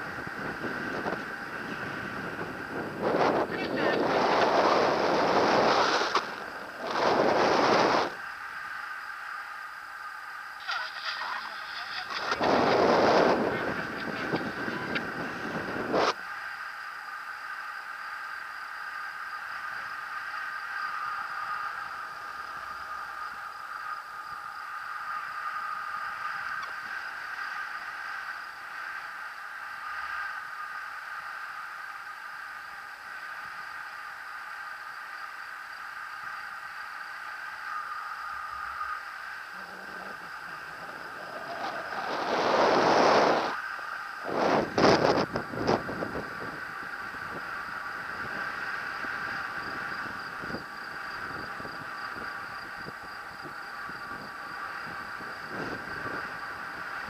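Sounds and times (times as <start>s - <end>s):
wind rushing over microphone: 0.0s - 8.8s, 11.1s - 16.3s, 37.5s - 57.0s
steady high whine: 0.0s - 57.0s.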